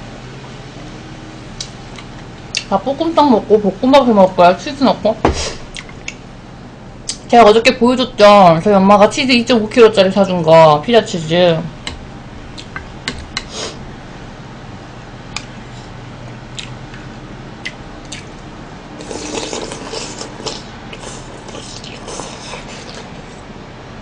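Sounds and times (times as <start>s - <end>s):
slurping and chewing soup: 19.0s - 23.4s.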